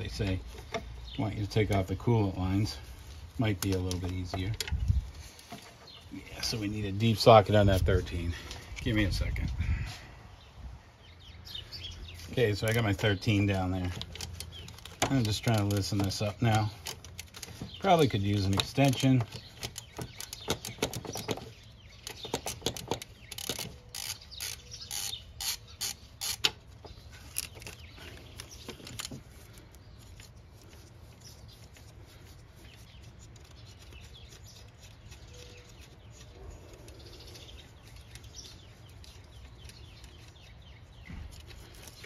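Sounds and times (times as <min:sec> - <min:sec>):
hand ratchet clicking: 0:22.0 - 0:26.6.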